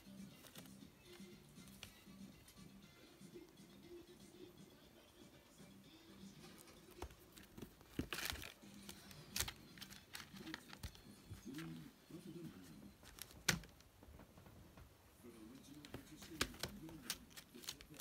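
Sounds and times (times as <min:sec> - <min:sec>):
newspaper crinkling and rustling: 0:07.0 - 0:11.8, 0:13.0 - 0:13.7, 0:15.7 - 0:18.0.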